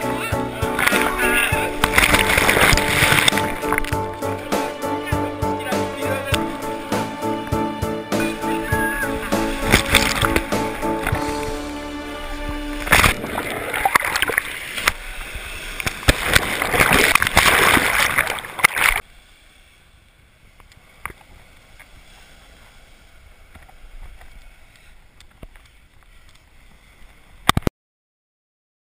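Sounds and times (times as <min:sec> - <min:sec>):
sea waves breaking: 0:00.0 - 0:27.5
faint surf hiss: 0:19.0 - 0:27.4.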